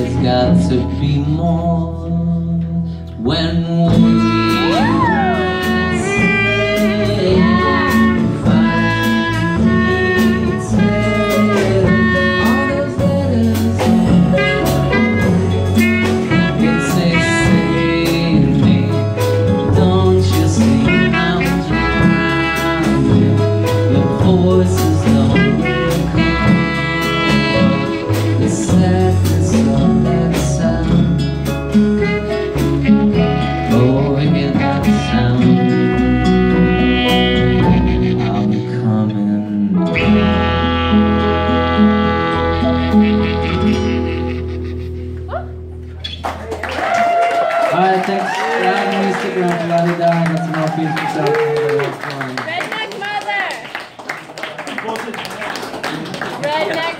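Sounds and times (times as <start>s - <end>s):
bass guitar: 0.0s - 52.6s
drums steady beat: 3.8s - 38.3s
clarinet melody: 3.9s - 31.0s, 31.6s - 46.2s.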